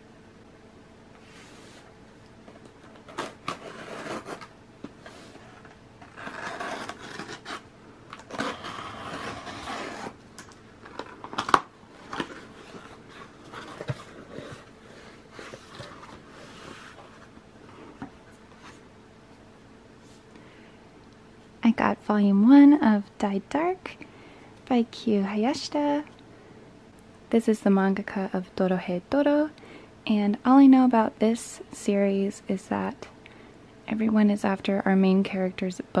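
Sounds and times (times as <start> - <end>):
cardboard flaps rustling: 10.9 - 18.8.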